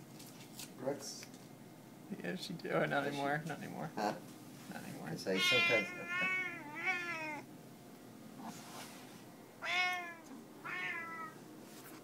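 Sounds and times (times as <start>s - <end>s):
cat meowing: 5.3s - 7.5s, 9.6s - 11.4s.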